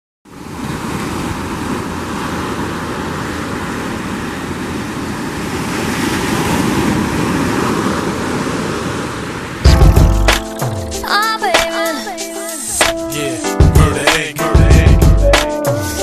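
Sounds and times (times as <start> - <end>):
waves breaking on beach: 0.3 - 9.7.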